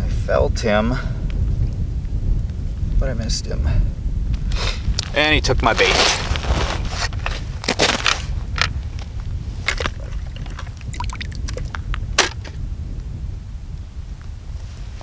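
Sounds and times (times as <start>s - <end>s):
wind rumble on microphone: 0.0s - 15.0s
water drips and splashes: 9.6s - 11.8s.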